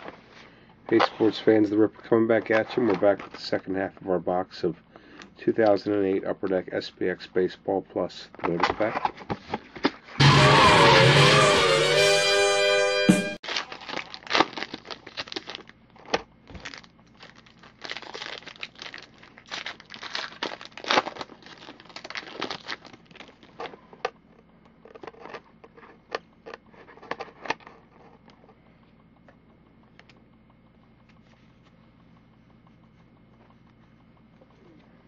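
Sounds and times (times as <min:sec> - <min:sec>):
card pack wrapper crinkling: 0:13.4 - 0:23.9.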